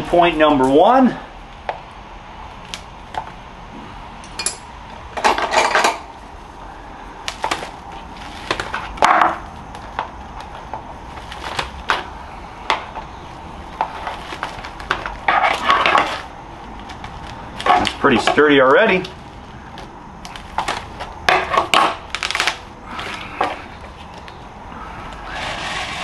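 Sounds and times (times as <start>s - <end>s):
scraping rustles: 7.3s - 12.2s, 12.9s - 26.0s.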